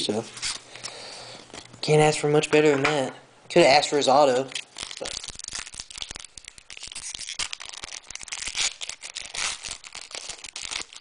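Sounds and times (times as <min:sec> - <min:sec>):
foil wrappers crinkling: 0:04.5 - 0:11.0.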